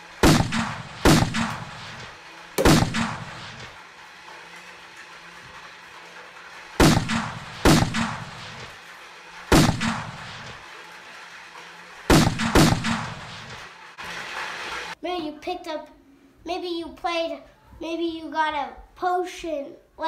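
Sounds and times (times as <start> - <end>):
gunshots ringing: 0.2 - 3.8, 6.8 - 8.7, 9.5 - 10.6, 12.1 - 13.6.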